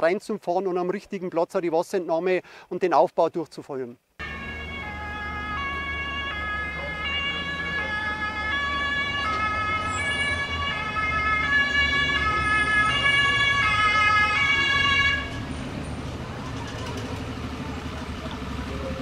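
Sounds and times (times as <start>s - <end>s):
two-tone sirens: 4.2s - 15.6s
diesel engine rumble: 4.2s - 19.0s.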